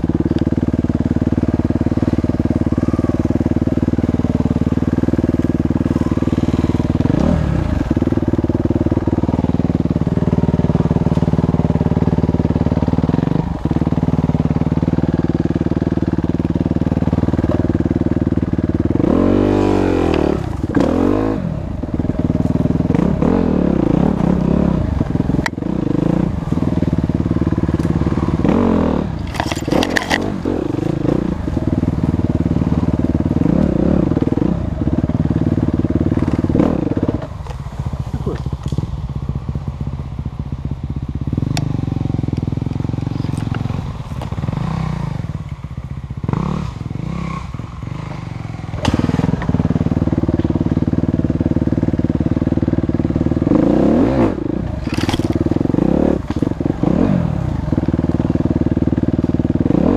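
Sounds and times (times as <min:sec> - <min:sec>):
motorcycle engine revving: 0:00.0 - 0:59.9
clicks and rattles: 0:29.2 - 0:30.3, 0:54.8 - 0:55.5.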